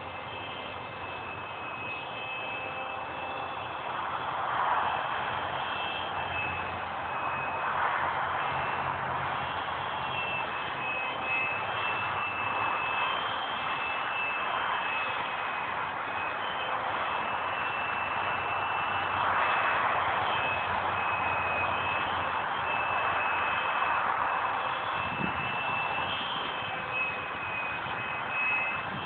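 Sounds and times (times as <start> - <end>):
model jet motor whine: 0.0 - 4.2.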